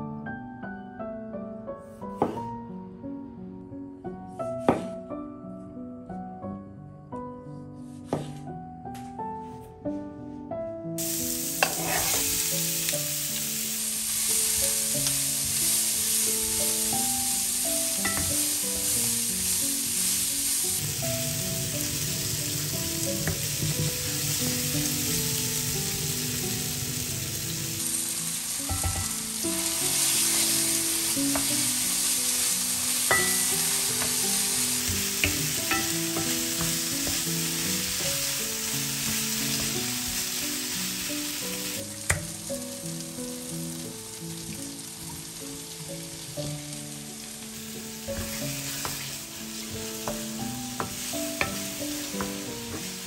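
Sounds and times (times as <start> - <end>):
tomatoes sizzling in oil: 11.0 - 53.0
wooden spoon scraping pan: 11.6 - 12.4.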